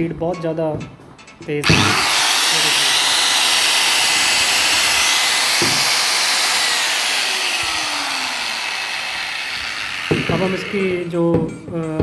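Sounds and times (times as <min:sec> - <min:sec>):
angle grinder motor whine: 0:01.6 - 0:11.1.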